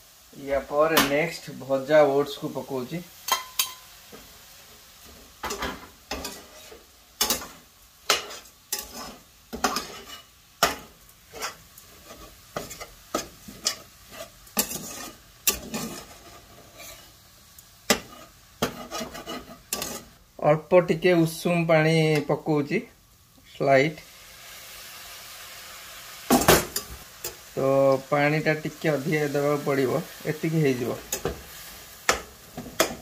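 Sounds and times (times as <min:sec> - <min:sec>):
metal spatula scraping a pan: 0:03.3 - 0:04.3, 0:05.0 - 0:17.2, 0:17.9 - 0:20.2, 0:29.2 - 0:33.0.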